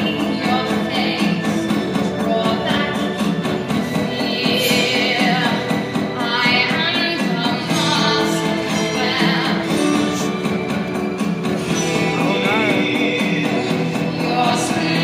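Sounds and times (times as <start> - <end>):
girl singing with vibrato: 0.0 - 10.3.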